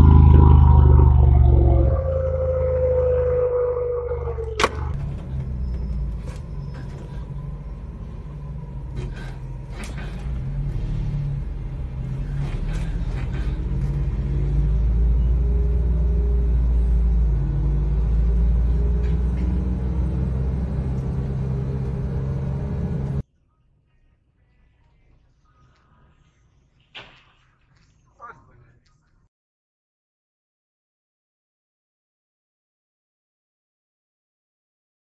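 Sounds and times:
bus engine and road rumble: 0:00.0 - 0:23.2.

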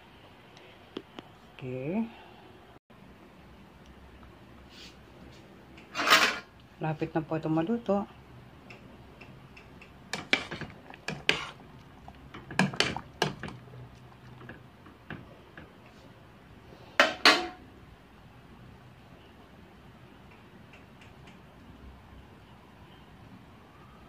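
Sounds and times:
metal pot and utensils clinking: 0:05.9 - 0:06.5, 0:09.8 - 0:11.6, 0:12.2 - 0:13.7, 0:17.0 - 0:17.6.

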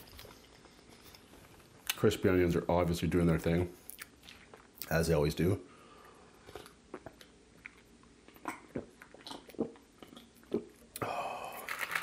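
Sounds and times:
person gulping drink: 0:06.4 - 0:12.0.

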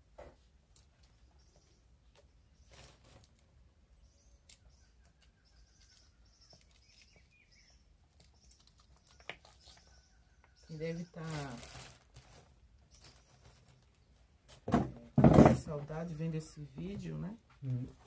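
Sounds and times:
birds chirping: 0:00.9 - 0:11.8, 0:12.7 - 0:14.4.

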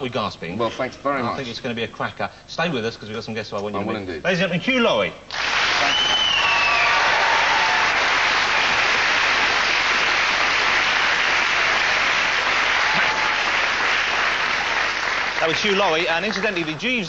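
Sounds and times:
audience applauding: 0:05.3 - 0:17.0.

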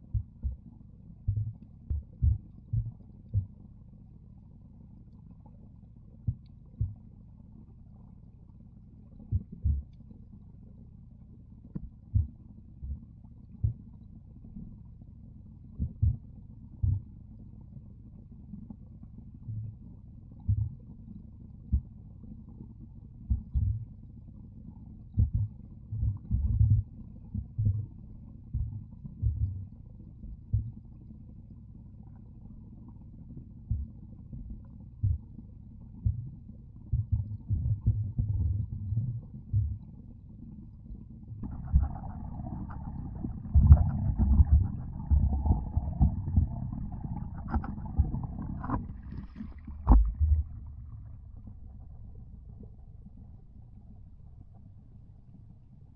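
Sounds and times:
low underwater rumble: 0:00.0 - 0:55.9
underwater thuds and bumps: 0:01.2 - 0:03.5, 0:16.8 - 0:17.1, 0:23.3 - 0:23.8, 0:25.1 - 0:27.9, 0:28.5 - 0:29.7, 0:36.9 - 0:39.9, 0:41.4 - 0:52.1
underwater churning rumble: 0:41.0 - 0:55.1.

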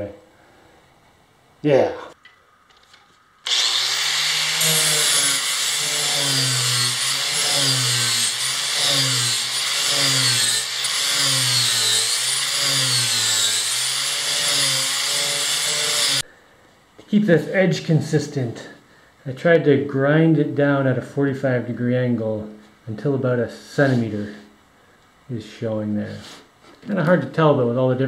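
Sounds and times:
angle grinder sanding wood: 0:03.4 - 0:16.2.

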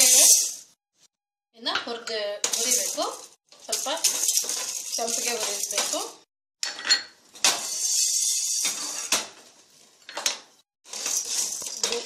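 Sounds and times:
dry lentils rattling into pan: 0:02.5 - 0:06.0, 0:10.9 - 0:12.0.

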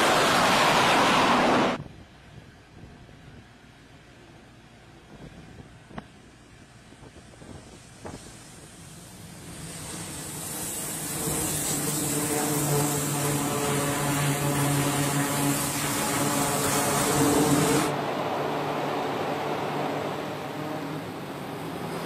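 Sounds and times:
turboprop propeller drone: 0:00.0 - 0:22.0
high hiss: 0:07.1 - 0:22.0.

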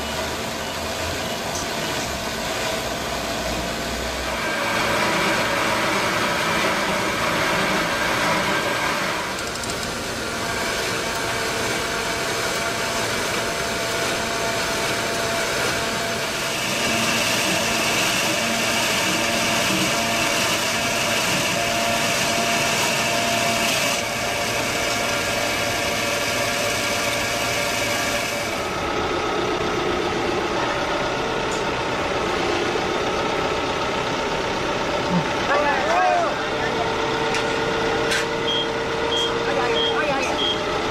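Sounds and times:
log saw cutting through log: 0:03.9 - 0:09.4, 0:10.0 - 0:28.8.

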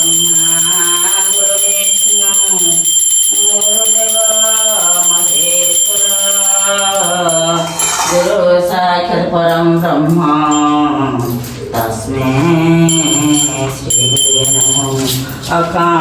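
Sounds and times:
high bell ringing: 0:00.0 - 0:08.1, 0:10.5 - 0:10.9, 0:12.9 - 0:15.5.

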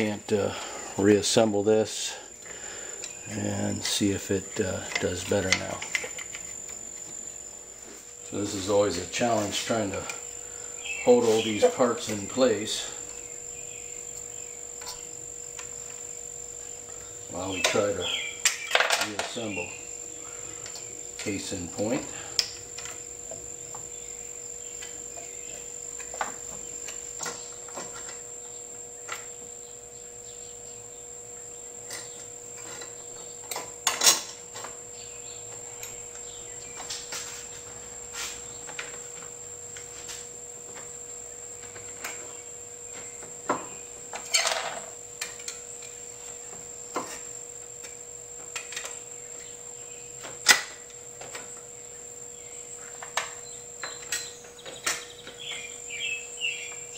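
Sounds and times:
high thin whine: 0:00.0 - 0:28.3, 0:35.8 - 0:40.6.

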